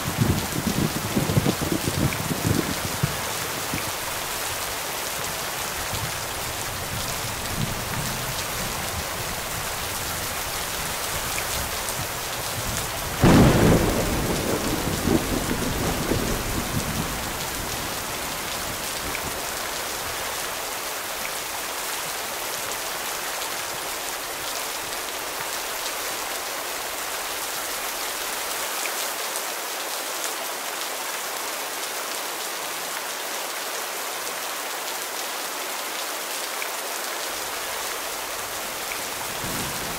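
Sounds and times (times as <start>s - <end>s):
heavy rain: 0.0s - 39.9s
thunder rumbling: 11.6s - 19.5s, 39.1s - 39.9s.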